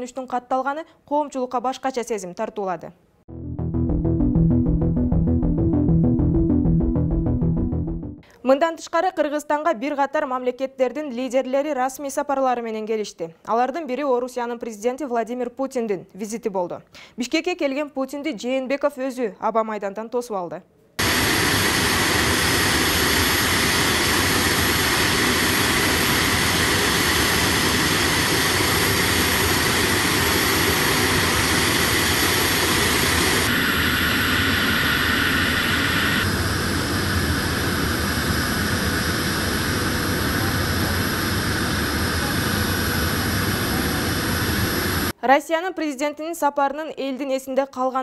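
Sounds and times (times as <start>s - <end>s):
jet engines roaring: 21.0s - 45.1s.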